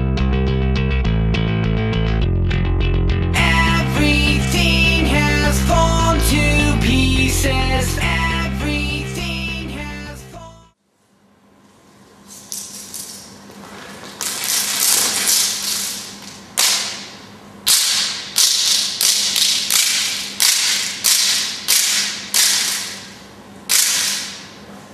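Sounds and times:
sharp slaps echoing in hall: 14.1s - 24.7s.

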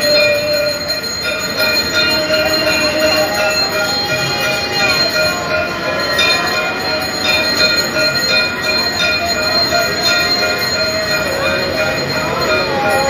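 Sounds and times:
temple bells clanging: 0.0s - 13.0s.

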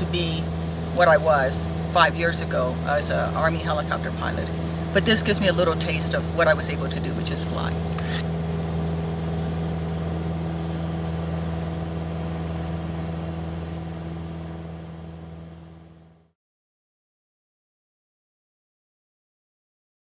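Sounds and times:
airplane engine and propeller droning: 0.0s - 16.4s.

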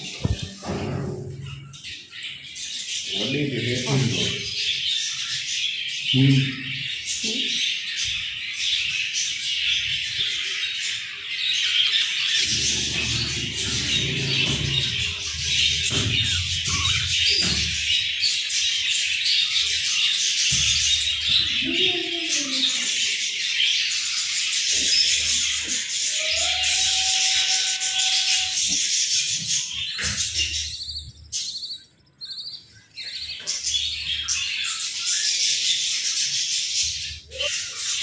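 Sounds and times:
budgerigars chirping: 0.0s - 38.0s
low rumbling noise: 12.4s - 17.6s.

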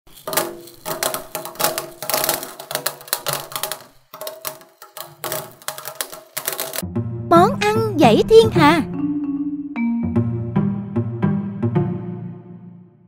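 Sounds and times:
candy sprinkles rattling: 0.0s - 6.8s.

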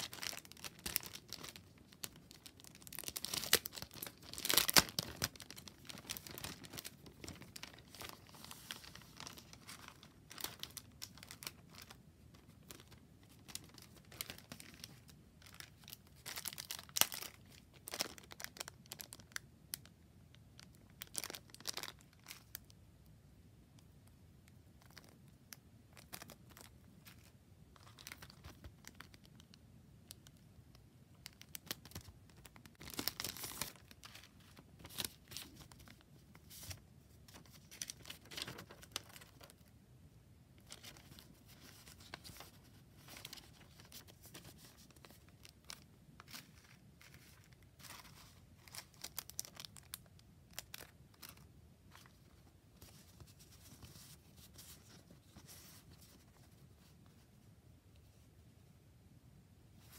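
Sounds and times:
plastic packet crinkling: 0.0s - 19.9s, 20.6s - 22.7s, 25.9s - 29.5s, 31.1s - 39.7s, 40.6s - 56.2s
paper rustling: 32.8s - 39.5s, 40.7s - 49.7s.

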